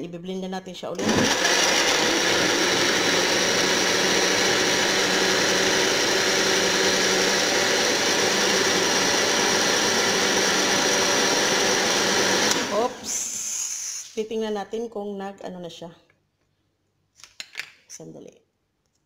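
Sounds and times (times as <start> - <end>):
blender whirring: 1.0 - 13.6.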